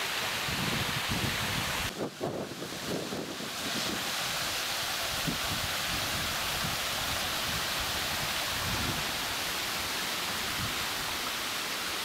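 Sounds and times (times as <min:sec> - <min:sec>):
stream running over rapids: 0:00.0 - 0:12.0
wind rumble on microphone: 0:00.4 - 0:04.2, 0:05.0 - 0:09.2.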